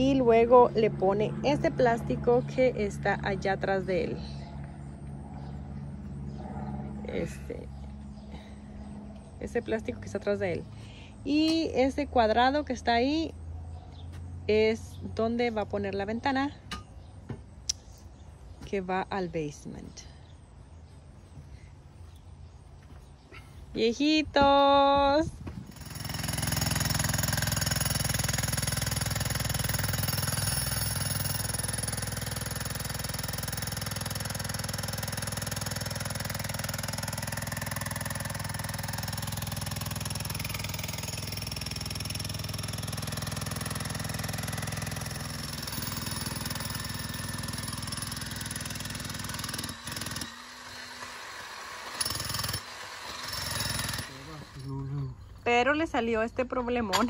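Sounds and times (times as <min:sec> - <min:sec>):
jackhammer hammering: 0:25.5 - 0:54.8.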